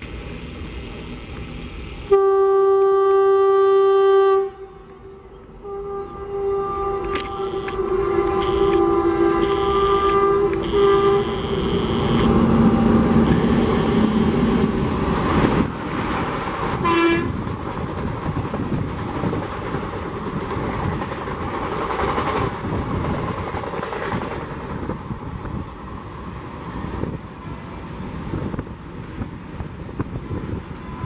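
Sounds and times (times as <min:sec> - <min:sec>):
locomotive horn: 0:02.1 - 0:14.9, 0:16.8 - 0:17.4
train coaches rushing past: 0:04.8 - 0:31.0.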